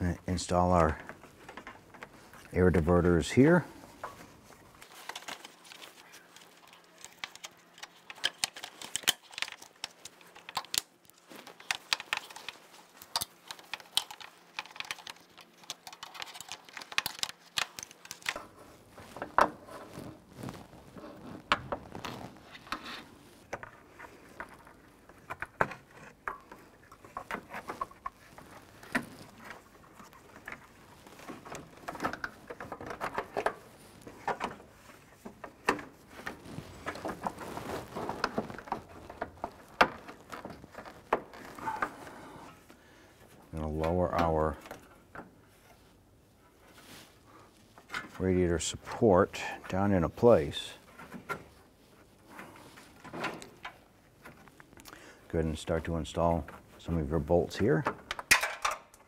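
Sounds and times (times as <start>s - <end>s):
plastic parts clicking and tapping: 4.8s - 18.5s.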